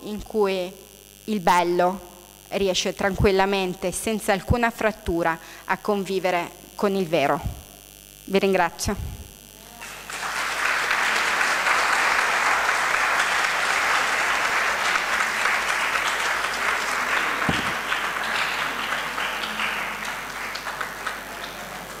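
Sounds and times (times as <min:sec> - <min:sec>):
audience applauding: 0:09.7 - 0:22.0.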